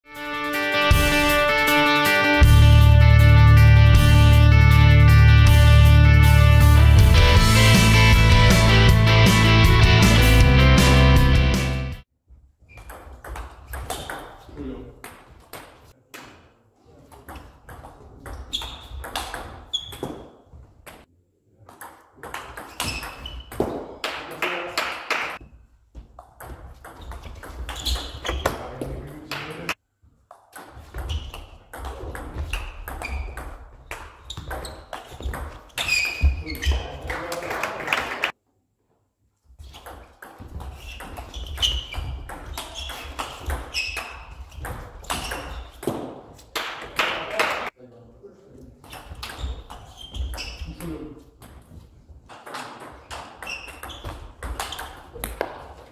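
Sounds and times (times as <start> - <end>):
shoes squeaking on floor: 12.4 - 14.6, 17.6 - 21.1, 22.6 - 23.8, 25.4 - 29.1, 30.6 - 37.2, 39.4 - 46.5, 48.8 - 55.9
short high squeaks: 22.7 - 23.6, 27.7 - 28.5, 34.3 - 36.9, 40.7 - 45.8, 48.9 - 50.8, 53.1 - 55.0.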